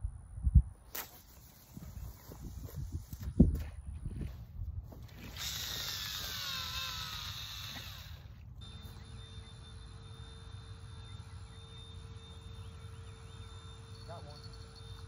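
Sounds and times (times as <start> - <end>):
faint steady hum: 0.0 - 15.0
fishing reel whirring: 5.1 - 15.0.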